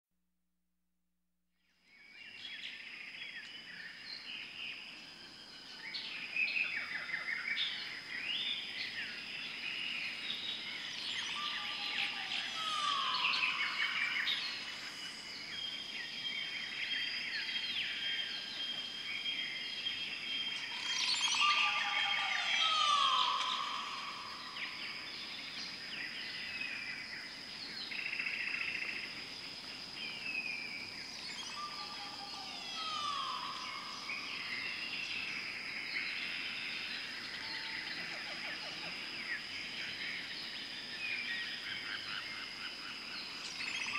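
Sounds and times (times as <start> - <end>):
birds chirping and whistling: 9.8 - 15.8, 17.3 - 26.9, 31.1 - 35.4, 43.4 - 43.9
lower bird call: 10.7 - 14.9, 20.4 - 25.4, 31.3 - 35.2.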